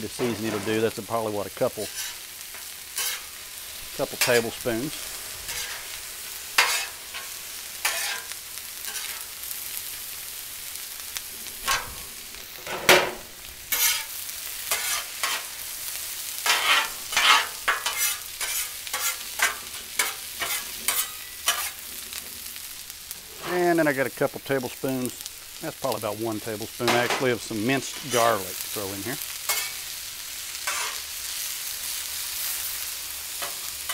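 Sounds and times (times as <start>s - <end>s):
food sizzling on a griddle: 0.0s - 33.9s
metal spatulas scraping and tapping: 1.9s - 3.2s, 6.6s - 8.3s, 13.7s - 14.1s, 14.7s - 15.4s, 16.5s - 21.7s, 29.5s - 29.7s, 30.7s - 31.0s.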